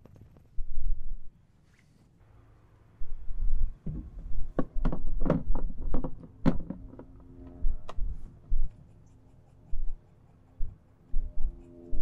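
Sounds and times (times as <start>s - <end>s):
wind rumble on microphone: 3.0s - 8.7s
sharp knocks and clicks: 3.8s - 7.2s.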